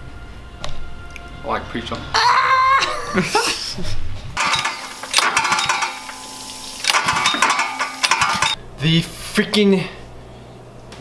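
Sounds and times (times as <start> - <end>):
recoil starter pulled and rattling: 4.4 - 6.2, 6.8 - 8.6.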